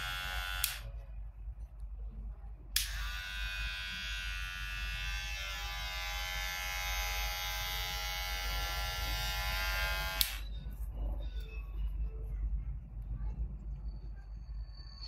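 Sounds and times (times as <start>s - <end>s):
electric hair clipper whine: 0.0s - 0.8s, 2.8s - 10.4s.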